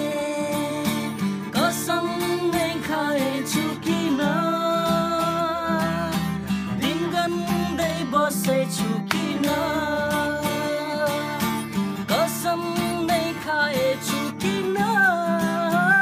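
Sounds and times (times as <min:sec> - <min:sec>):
acoustic guitar strumming: 0:00.0 - 0:16.0
man singing: 0:00.0 - 0:16.0.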